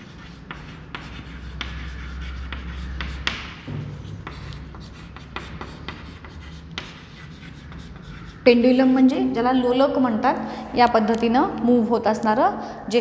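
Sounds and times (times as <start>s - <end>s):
chalk tapping and scraping: 0.0s - 8.6s.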